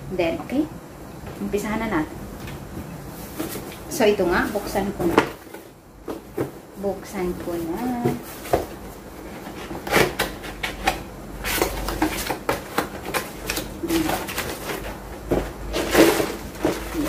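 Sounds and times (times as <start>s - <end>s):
cardboard box rustling and knocking: 3.3s - 3.8s, 4.4s - 6.7s, 7.3s - 17.0s.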